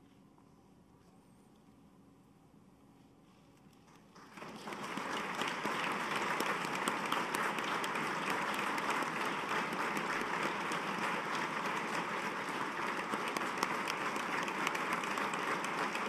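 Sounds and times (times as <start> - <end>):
audience applause: 4.2 - 16.0.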